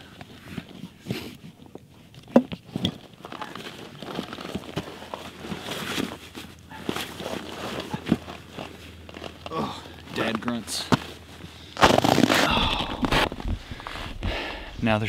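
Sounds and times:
backpack fabric rustling: 2.7 - 12.5.

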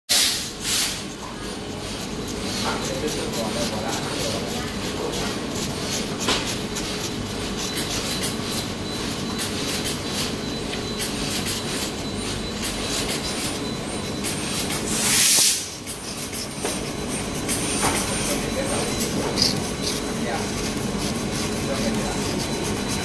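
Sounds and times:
steady mechanical hum: 0.1 - 23.0
brush scrubbing metal: 1.1 - 10.4, 14.3 - 23.0.

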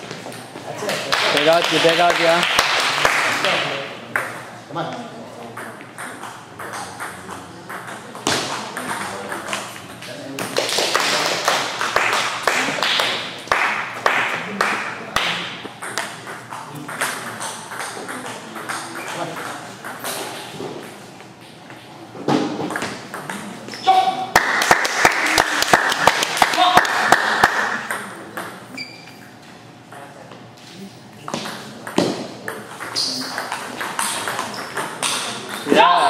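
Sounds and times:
people talking: 3.4 - 11.4, 14.3 - 20.0
table tennis balls clicking: 31.3 - 35.8.

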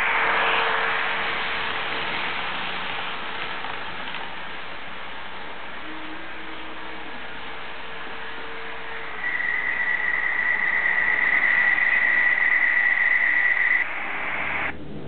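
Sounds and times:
model locomotive running: 0.0 - 13.8
high whine: 0.0 - 15.0.

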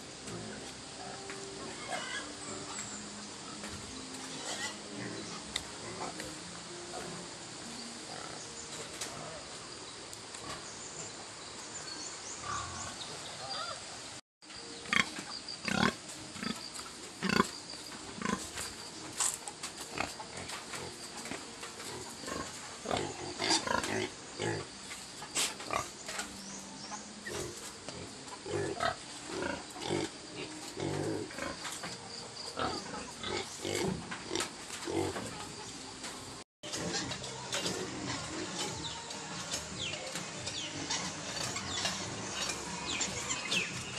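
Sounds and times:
steady background hiss: 0.0 - 36.4
pigs grunting: 0.3 - 2.8, 3.4 - 7.2, 14.9 - 18.8, 19.8 - 26.3, 27.2 - 35.7, 36.7 - 43.9.

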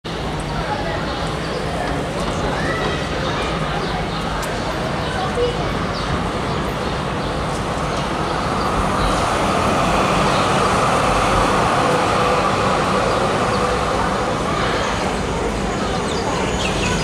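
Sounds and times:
tram passing on track: 0.1 - 17.0.

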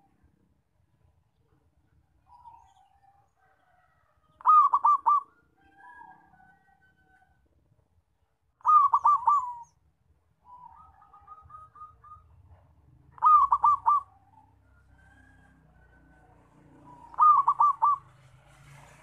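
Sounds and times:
dove cooing: 4.4 - 6.0, 8.6 - 9.8, 10.5 - 14.6, 16.2 - 18.4.

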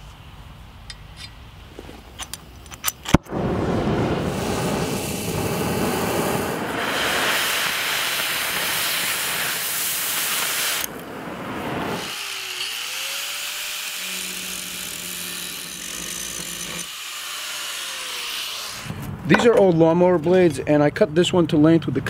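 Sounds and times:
torch flame hissing: 3.2 - 19.2
angle grinder motor whining: 12.0 - 19.1.

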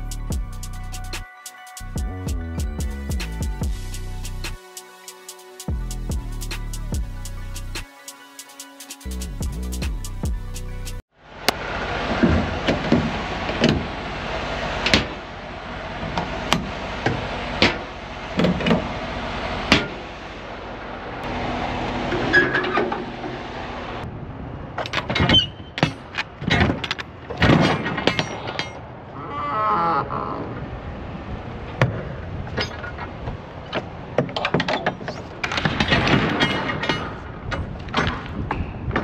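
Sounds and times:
truck engine running: 0.0 - 1.2, 1.8 - 4.6, 9.1 - 24.7
sharp knocks and bangs: 34.2 - 39.0.

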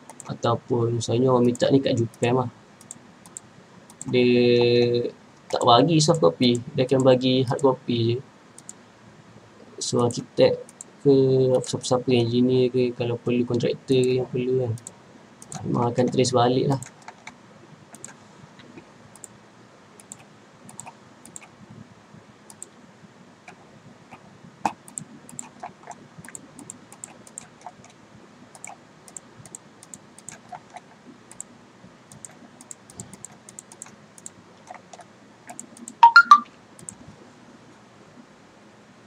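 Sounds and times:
computer mouse clicking: 0.0 - 0.4, 1.4 - 4.7, 8.6 - 8.8, 10.1 - 10.9, 14.8 - 19.4, 20.0 - 21.5, 22.5 - 22.7, 24.6 - 31.5, 32.1 - 36.0, 36.8 - 37.0
faint steady hum: 0.0 - 39.0.

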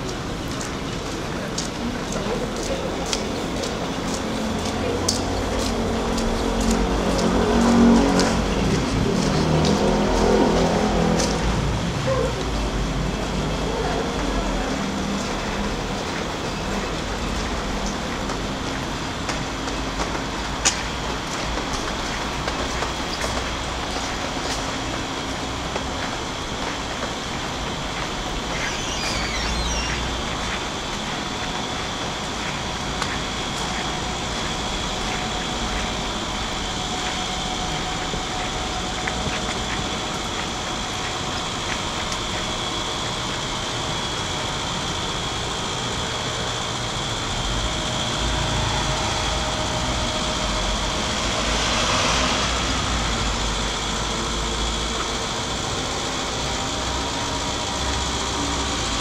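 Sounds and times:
traffic noise: 0.0 - 59.0
high chirping: 28.3 - 30.7.

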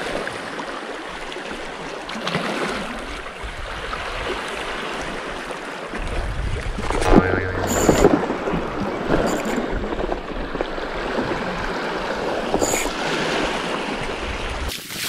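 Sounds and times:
waves lapping against rocks: 0.0 - 15.0.

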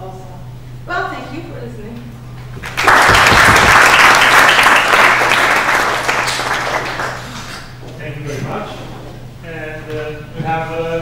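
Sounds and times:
audience applauding: 2.6 - 7.8.

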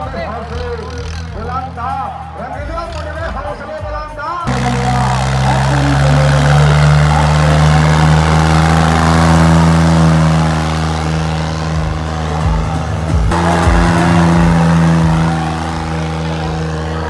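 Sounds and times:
diesel tractor engine running hard: 0.0 - 3.8, 4.5 - 17.0.

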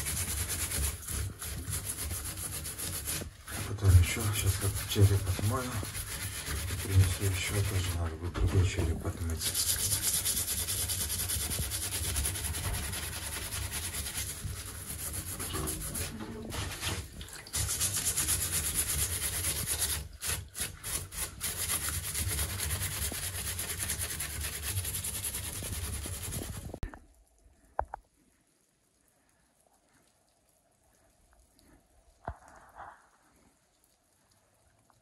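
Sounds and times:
stiff brush scrubbing bone: 0.0 - 26.8.

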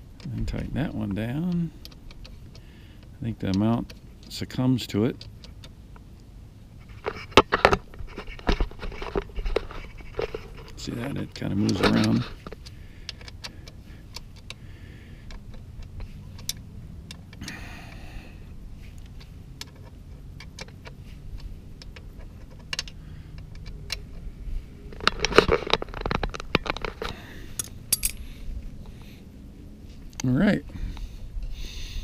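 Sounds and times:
handling clatter: 6.8 - 14.6, 18.8 - 29.1
metal parts clicking and clinking: 7.0 - 14.6, 15.2 - 17.6, 19.0 - 24.3, 24.9 - 28.3.

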